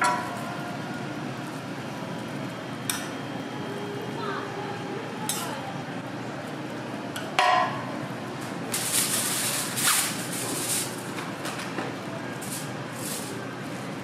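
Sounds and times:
foil pulled from a roll: 0:08.7 - 0:11.0.

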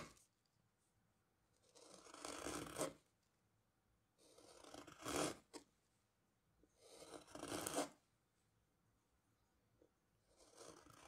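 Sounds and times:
carving gouge slicing wood: 0:01.6 - 0:03.0, 0:04.2 - 0:05.6, 0:06.8 - 0:08.0, 0:10.3 - 0:11.0.

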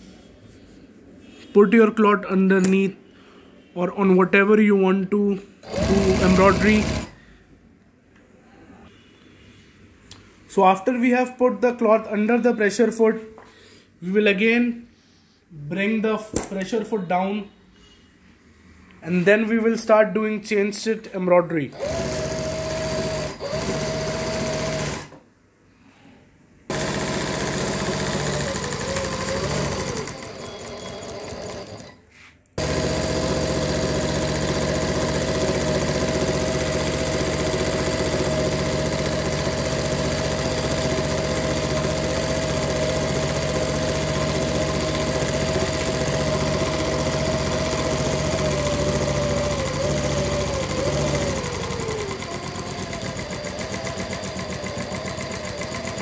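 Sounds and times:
embroidery machine stitching: 0:05.6 - 0:07.2, 0:21.7 - 0:25.2, 0:26.7 - 0:32.0, 0:32.6 - 0:56.0.

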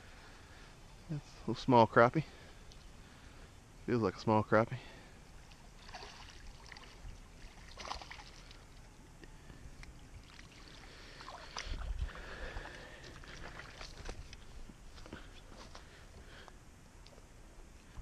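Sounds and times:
fish splashing at water surface: 0:05.8 - 0:08.7.

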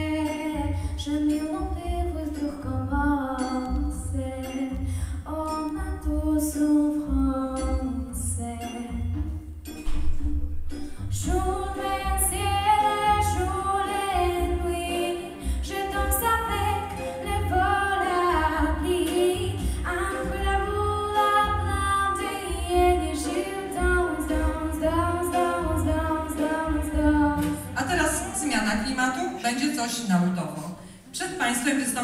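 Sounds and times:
girl singing into a microphone: 0:00.0 - 0:09.0, 0:11.2 - 0:27.8
pulsing bass accompaniment: 0:00.0 - 0:29.2.

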